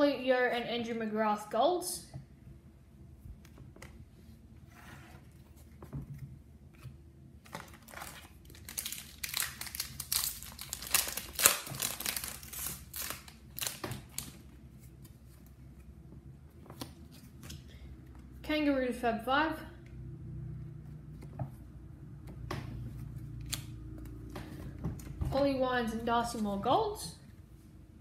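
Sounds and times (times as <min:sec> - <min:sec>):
foil pack tearing and crinkling: 0:07.5 - 0:14.4.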